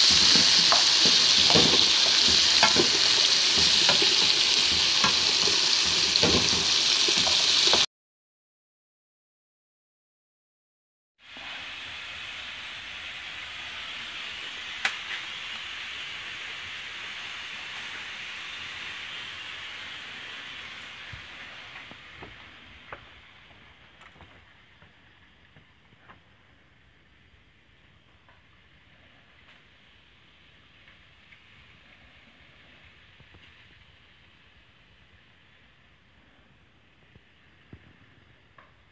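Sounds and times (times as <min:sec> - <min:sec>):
cooking hiss over fire: 0:00.0 - 0:07.9, 0:11.2 - 0:38.9
fire crackling: 0:00.0 - 0:07.9, 0:14.4 - 0:28.9.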